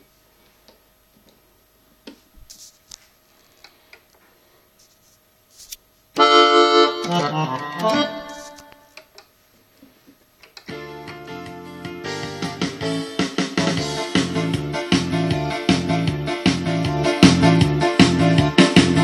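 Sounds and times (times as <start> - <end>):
keyboard chord and notes: 6.2 - 8.9, 10.7 - 19.0.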